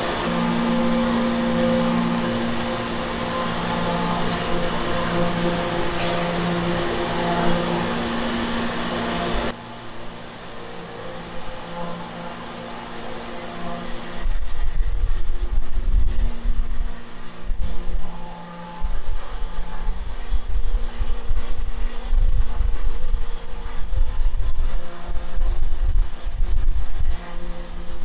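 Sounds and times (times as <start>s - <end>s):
machinery humming and whirring: 0.0s - 28.0s.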